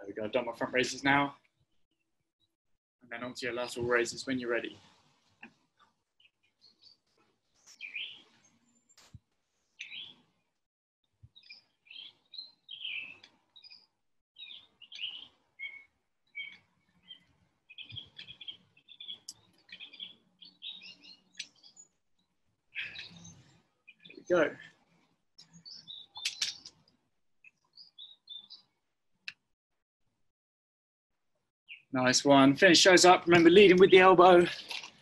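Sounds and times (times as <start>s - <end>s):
garden birds chirping: 0.0s - 1.3s, 3.1s - 4.8s, 6.2s - 9.0s, 9.7s - 10.3s, 11.3s - 22.0s, 22.7s - 24.7s, 25.4s - 29.4s, 31.7s - 35.0s
sharp click: 26.2s - 26.8s.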